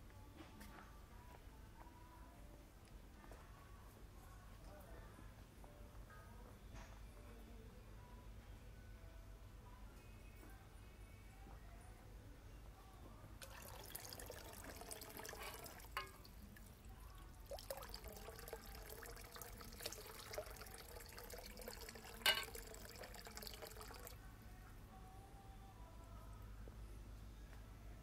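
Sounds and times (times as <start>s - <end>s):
water trickling into stone basin: 13.4s - 24.2s.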